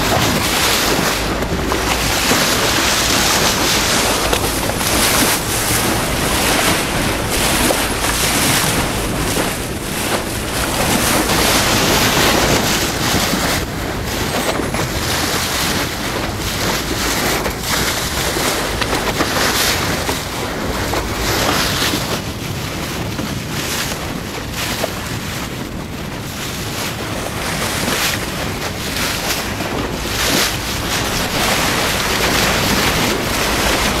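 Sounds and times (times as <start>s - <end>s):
water rushing past boat hull: 0.0s - 34.0s
wind buffeting microphone: 0.0s - 34.0s.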